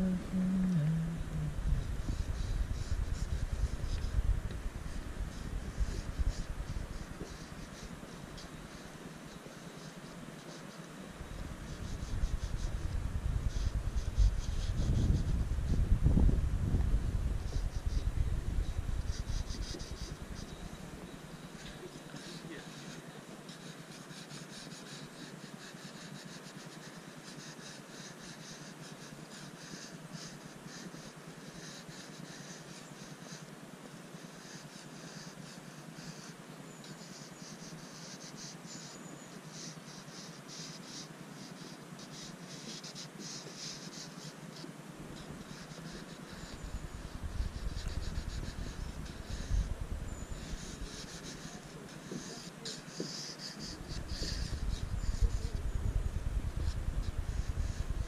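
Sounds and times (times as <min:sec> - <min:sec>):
low rumble: 0:00.0 - 0:06.9
crayon scratching on paper: 0:01.7 - 0:16.2, 0:17.0 - 0:58.0.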